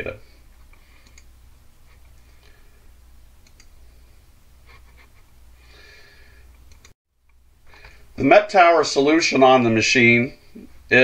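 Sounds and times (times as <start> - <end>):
low steady hum: 0.0 - 11.0
soft hiss: 0.0 - 11.0
faint clicks: 0.6 - 1.3, 3.4 - 3.8, 6.5 - 7.9.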